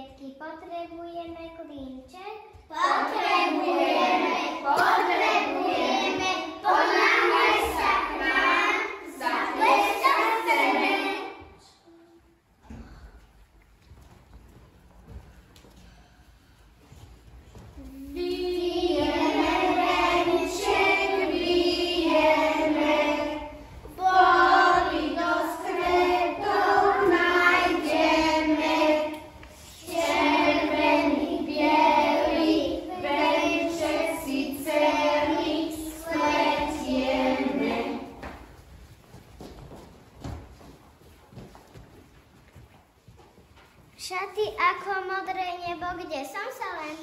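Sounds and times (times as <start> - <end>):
children singing in unison: 2.8 - 11.6, 18.0 - 38.3.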